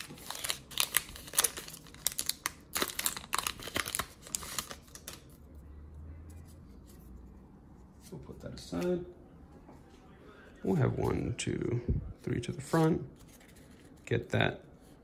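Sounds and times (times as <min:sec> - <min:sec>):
foil wrapper crinkling and tearing: 0:00.0 - 0:05.3.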